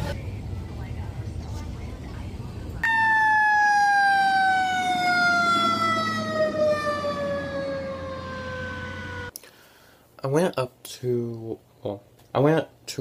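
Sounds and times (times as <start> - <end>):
low rumble of engines: 0.0 - 9.3
emergency vehicle siren sliding down: 2.8 - 9.3.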